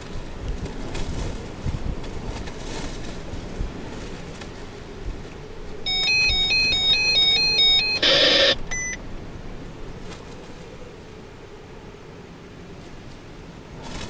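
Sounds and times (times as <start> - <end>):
wind rumble on microphone: 0.0 - 7.5, 8.6 - 14.0
harsh buzzing burst: 5.9 - 8.7
phone ringtone beeps: 5.9 - 9.0.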